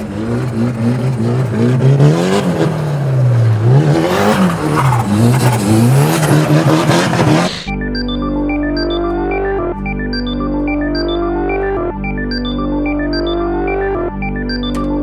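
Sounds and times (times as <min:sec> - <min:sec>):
car engine revving: 0:00.0 - 0:07.7.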